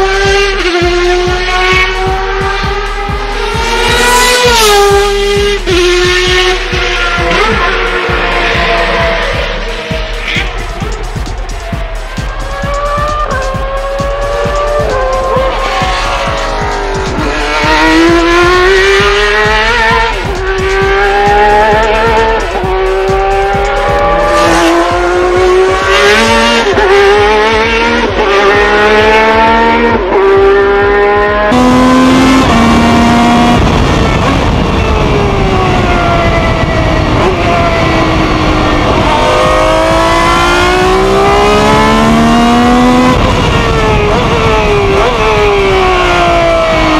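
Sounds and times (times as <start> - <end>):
racing engine revving through gears: 0.0 - 46.9.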